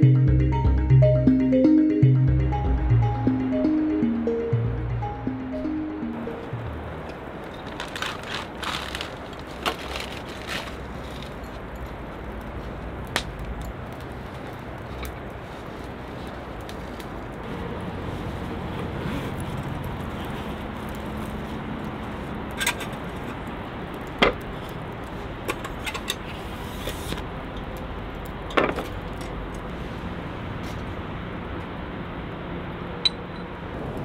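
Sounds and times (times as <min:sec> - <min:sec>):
outdoor background: 0:00.0 - 0:34.0
camping gear clicks and clinks: 0:07.3 - 0:15.4.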